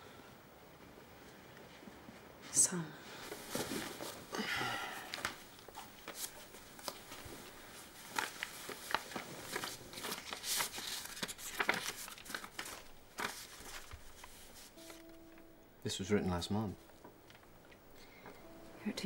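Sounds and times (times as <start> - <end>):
paper rustling and crinkling: 3.2 - 15.4.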